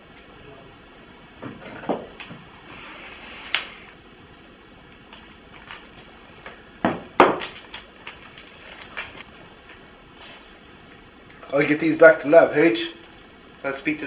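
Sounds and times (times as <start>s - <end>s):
plastic bag crinkling: 5.1s - 9.8s, 12.8s - 14.0s.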